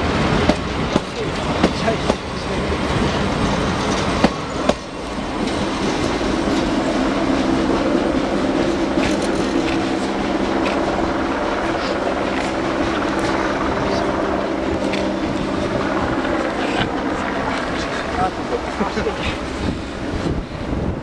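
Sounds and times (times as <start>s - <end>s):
train wheels clacking over rail joints: 0.0s - 11.1s
train rumbling: 0.0s - 21.0s.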